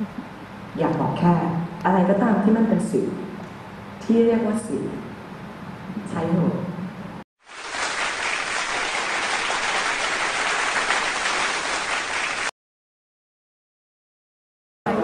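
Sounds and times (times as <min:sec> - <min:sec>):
audience applauding: 0:07.4 - 0:12.5.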